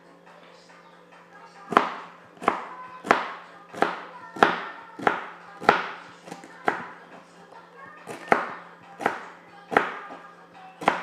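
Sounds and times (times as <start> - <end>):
knife chopping celery on board: 1.7 - 7.2, 8.0 - 10.2, 10.8 - 11.0.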